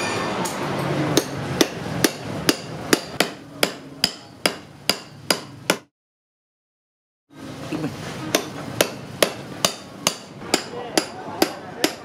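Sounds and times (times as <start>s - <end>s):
hammer striking metal chisel: 0.0s - 5.9s, 8.3s - 12.0s.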